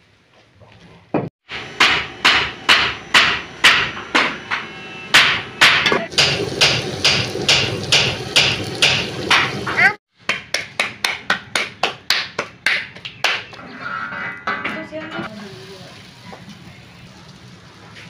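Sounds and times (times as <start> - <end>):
sharp knocks: 1.2 - 10.4.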